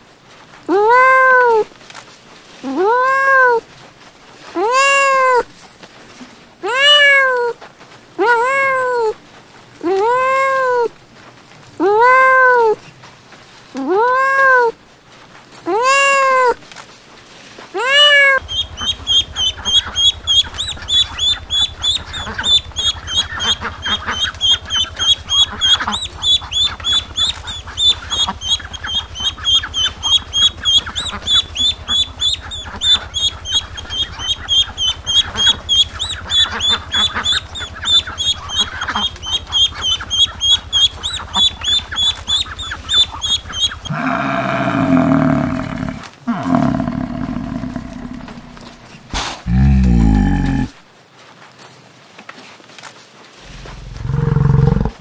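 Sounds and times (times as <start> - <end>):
ducklings peeping: 17.9 - 44.0.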